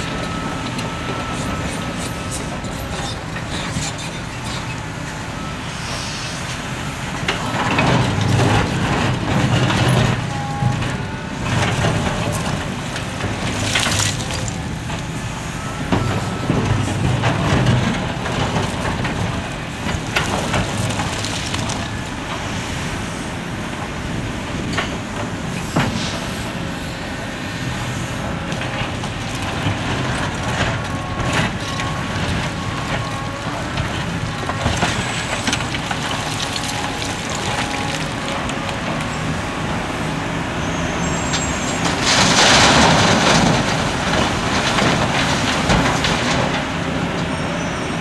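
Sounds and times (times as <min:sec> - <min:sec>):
excavator diesel engine under load: 0:00.0 - 0:48.0
rocks scraping against bucket: 0:32.8 - 0:39.0.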